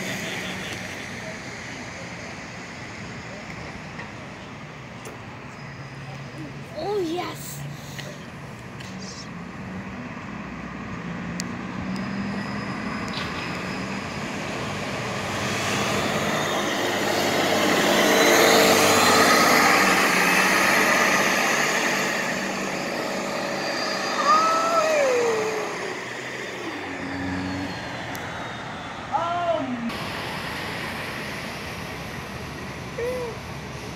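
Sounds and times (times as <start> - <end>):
bus passing by: 0.0 - 33.9
short falling squeal: 11.8 - 14.3, 23.3 - 29.2.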